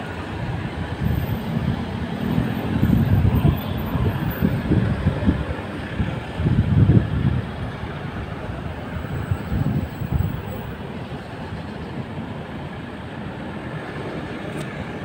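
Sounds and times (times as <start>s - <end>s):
road traffic passing: 0.0s - 15.0s.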